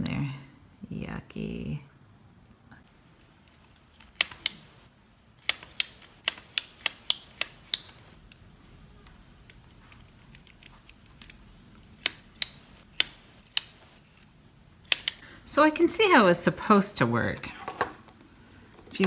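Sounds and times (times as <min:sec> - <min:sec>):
toy mechanism clicks and taps: 0:03.5 - 0:04.7, 0:05.4 - 0:08.1, 0:12.0 - 0:13.8, 0:14.8 - 0:15.2.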